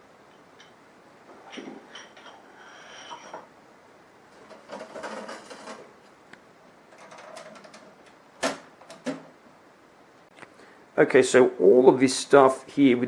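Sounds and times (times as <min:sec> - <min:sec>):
metal stove parts clattering: 0:01.4 - 0:02.5.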